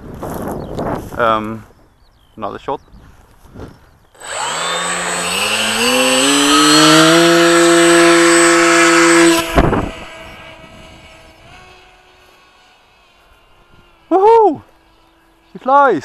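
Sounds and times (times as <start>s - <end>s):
electric motor and propeller whine: 4.1s - 16.0s.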